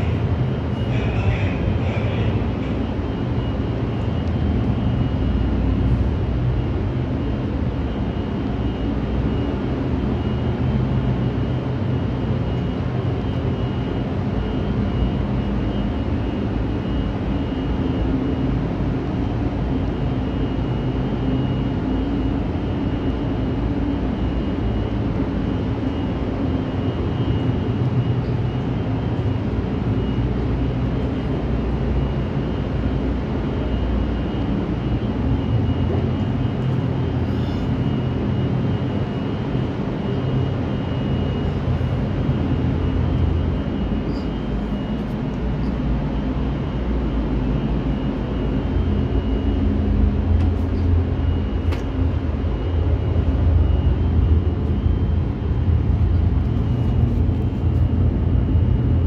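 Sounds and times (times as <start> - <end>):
engine-room machinery humming: 0.0 - 59.0
thin steady whine: 0.0 - 59.0.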